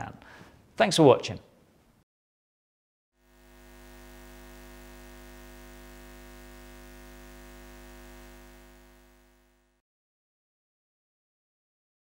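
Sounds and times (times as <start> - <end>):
neon sign electric hum: 3.2 - 9.8.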